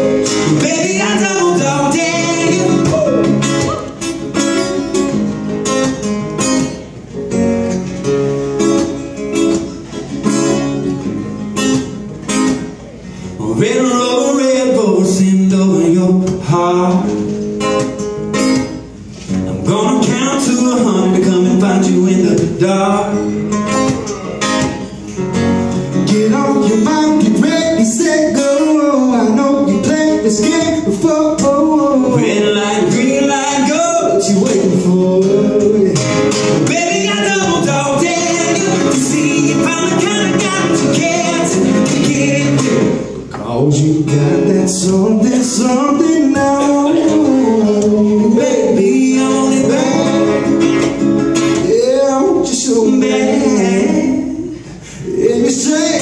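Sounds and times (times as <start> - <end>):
man singing: 0.0 - 3.9, 13.4 - 17.4, 19.5 - 23.5, 25.9 - 56.0
acoustic guitars playing: 0.0 - 56.0.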